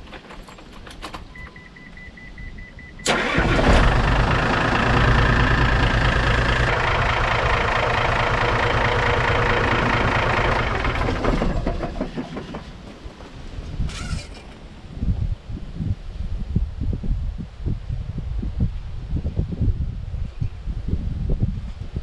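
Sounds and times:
truck diesel engine starting: 3.0 - 13.0.

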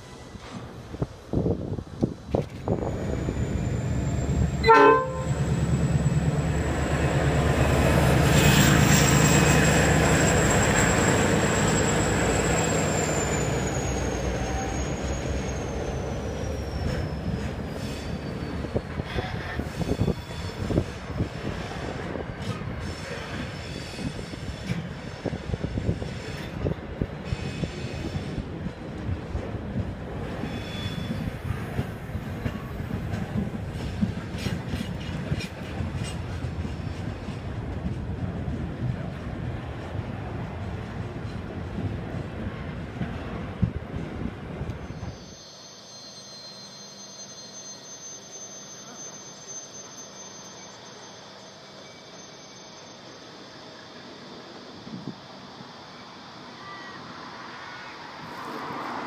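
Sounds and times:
locomotive horn toot: 4.6 - 5.5
train wheels clicking over rail joints: 15.3 - 39.2.

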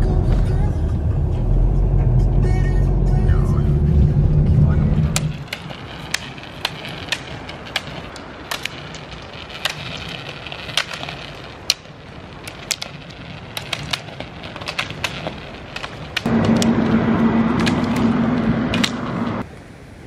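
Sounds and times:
roller skis rolling on asphalt: 4.3 - 19.5
ski poles clicking on road: 5.0 - 19.4.

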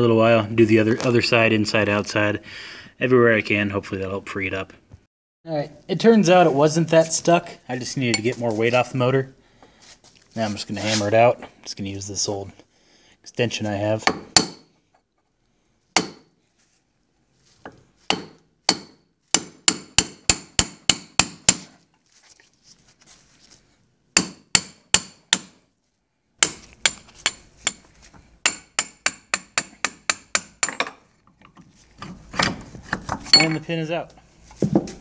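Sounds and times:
hammer striking metal: 18.1 - 21.6.

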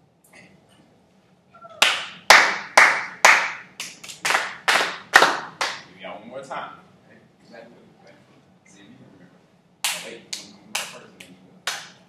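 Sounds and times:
hands clapping a rhythm: 1.8 - 5.9, 9.8 - 12.0.

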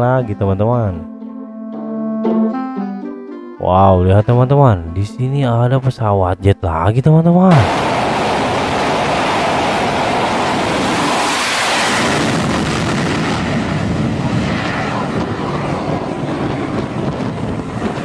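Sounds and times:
fighter jet engines roaring: 7.5 - 18.0.

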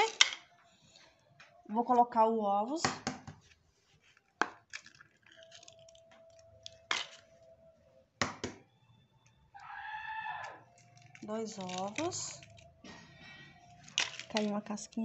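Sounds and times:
eggs cracking on a bowl: 0.0 - 0.5, 4.3 - 7.3, 8.2 - 8.6, 9.6 - 15.0.

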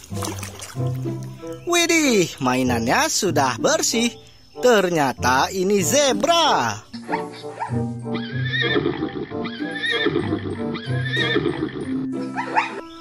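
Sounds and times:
background music: 0.0 - 13.0
zebra braying bark: 7.0 - 10.0, 12.2 - 12.9.

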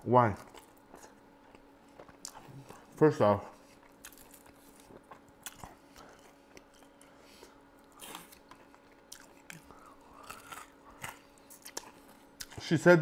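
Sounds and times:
person chewing: 0.3 - 12.6.

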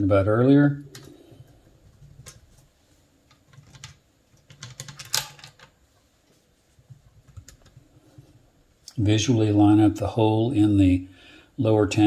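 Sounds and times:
metal rifle parts clicking: 3.3 - 5.7.

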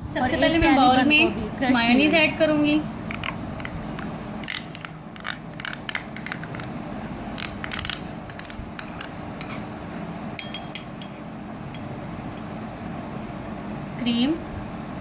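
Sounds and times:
metal spoon scraping a cup: 7.4 - 9.7
spoon tapping glass bowl: 10.4 - 11.9.

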